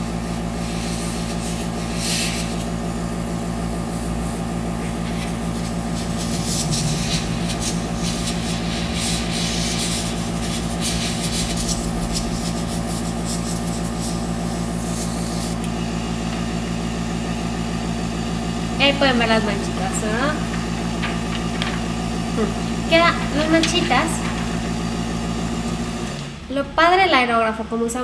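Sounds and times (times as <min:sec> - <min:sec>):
airbrush compressor humming: 0:00.0 - 0:28.0
airbrush spraying hiss: 0:00.6 - 0:02.7, 0:03.8 - 0:15.6.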